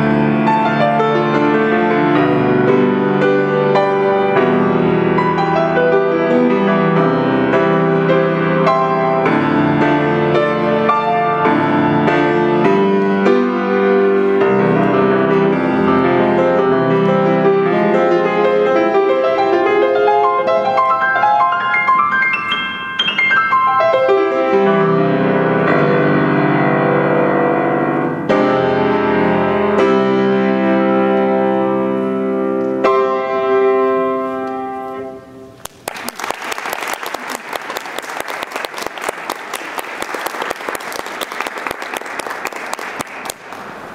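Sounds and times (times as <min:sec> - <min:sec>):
grand piano playing: 0:00.0 - 0:35.7
audience applauding: 0:35.6 - 0:43.9.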